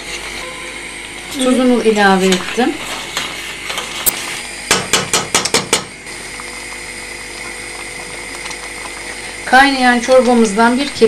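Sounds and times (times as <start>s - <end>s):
soup simmering hiss: 6.0s - 10.7s.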